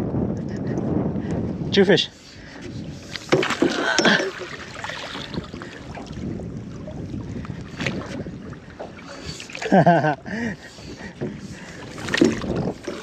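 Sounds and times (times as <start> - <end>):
water lapping: 2.0 - 13.0
splashing and knocks: 3.2 - 6.2, 11.0 - 13.0.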